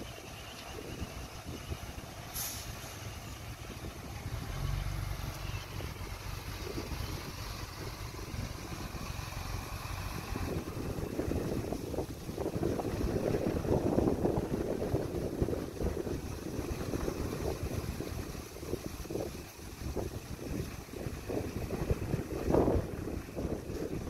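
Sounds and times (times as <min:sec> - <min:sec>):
diesel engine rumbling: 0:00.0 - 0:24.0
brief hiss: 0:02.3 - 0:03.2.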